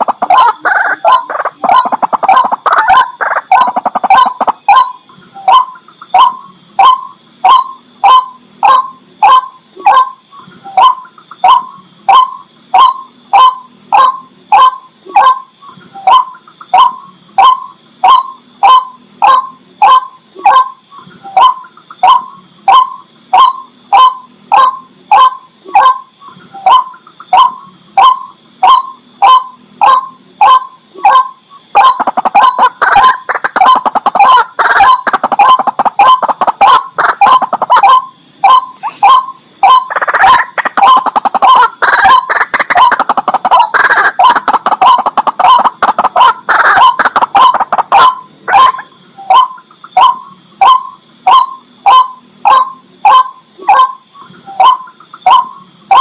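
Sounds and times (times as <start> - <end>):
waterhen calling: 0.0 - 10.1, 26.6 - 56.0.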